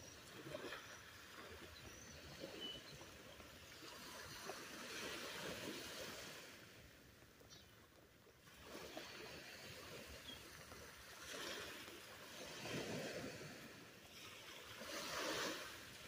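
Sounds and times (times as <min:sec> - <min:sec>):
faint surf washing onto beach: 0:08.4 - 0:16.0.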